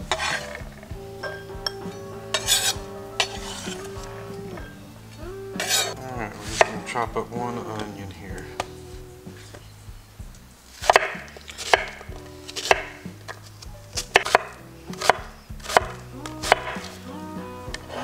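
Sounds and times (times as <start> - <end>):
knife chopping on wooden board: 10.8 - 12.9.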